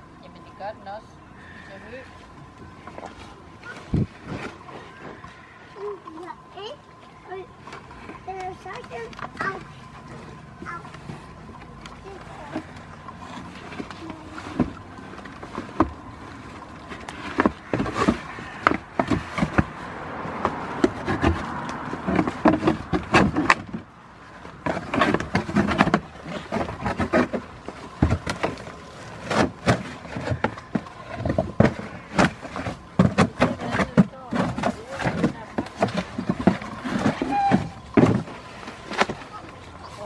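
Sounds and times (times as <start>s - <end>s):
cardboard box rustling and knocking: 16.9s - 23.9s, 24.5s - 40.0s.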